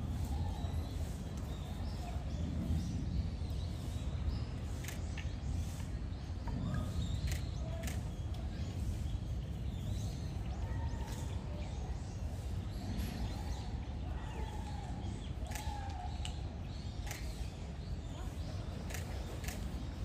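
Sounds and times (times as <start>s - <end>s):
light sharp clicks: 7.2s - 8.4s, 15.4s - 17.6s, 18.8s - 19.8s.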